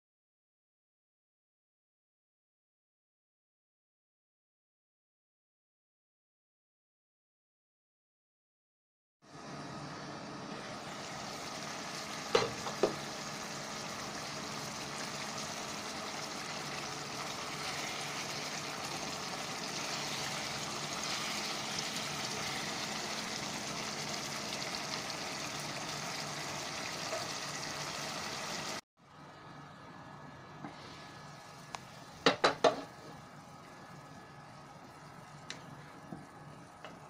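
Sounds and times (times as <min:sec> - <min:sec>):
food sizzling and bubbling: 0:10.5 - 0:28.8, 0:30.6 - 0:37.0
spatula stirring: 0:17.0 - 0:22.9.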